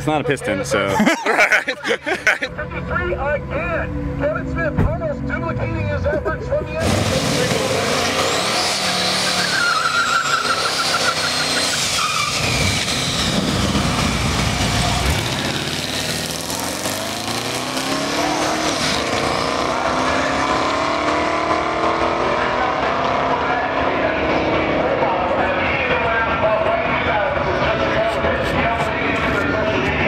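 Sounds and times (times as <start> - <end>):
drag car engine at full throttle: 6.6 - 30.0.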